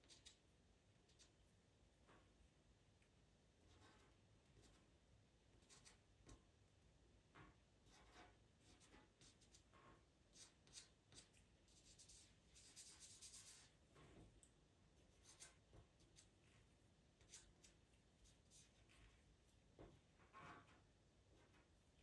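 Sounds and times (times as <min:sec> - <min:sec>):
pencil scratching on paper: 0:03.7 - 0:04.9, 0:05.6 - 0:06.0, 0:07.8 - 0:09.7, 0:10.3 - 0:13.7, 0:15.0 - 0:16.6, 0:17.2 - 0:19.2.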